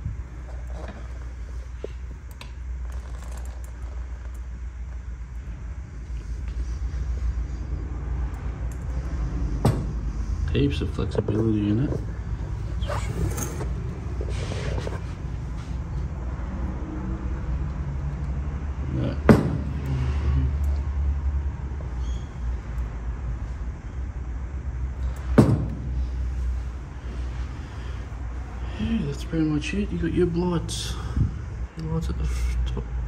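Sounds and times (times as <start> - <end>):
steady low rumble: 0.0 - 33.0
sharp knocks on wood: 19.3 - 19.7.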